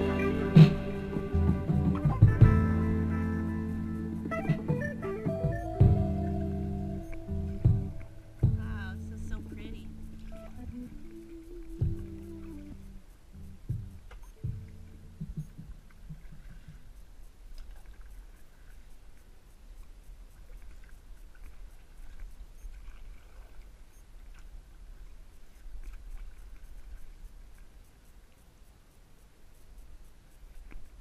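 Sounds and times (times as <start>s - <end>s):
music: 0.0s - 15.7s
low rumble of kayak gliding: 0.0s - 31.0s
light ticks and water drips: 5.7s - 31.0s.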